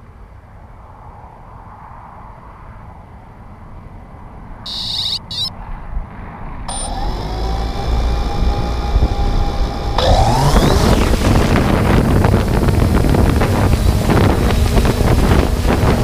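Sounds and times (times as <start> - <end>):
drone motors whining: 4.7 - 5.5, 6.7 - 16.0
high beeps: 4.7 - 5.5, 6.7 - 7.0.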